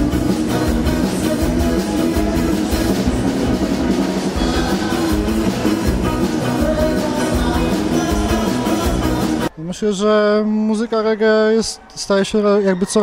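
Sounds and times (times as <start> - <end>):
live rock band playing: 0.0 - 9.5.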